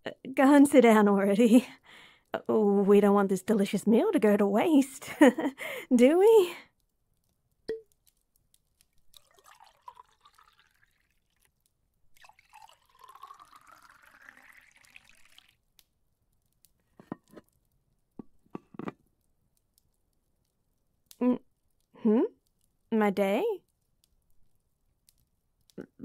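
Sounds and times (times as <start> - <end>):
liquid pouring into glass: 9.2 - 11.5, 12.1 - 15.6.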